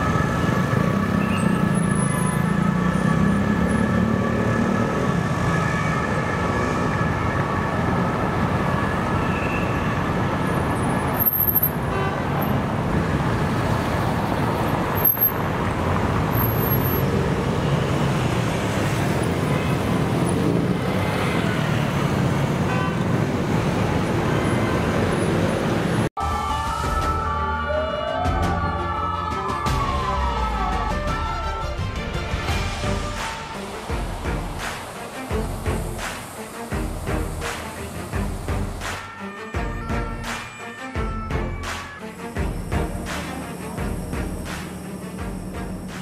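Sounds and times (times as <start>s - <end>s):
siren wailing: 0.0s - 10.1s
car and motorcycle engines: 0.0s - 26.1s, 32.4s - 39.1s, 41.6s - 46.0s.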